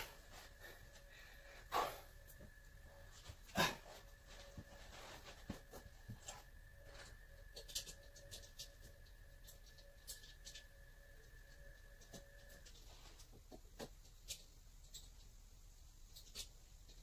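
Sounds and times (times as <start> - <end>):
faint steady high hum: 0.0 - 17.0.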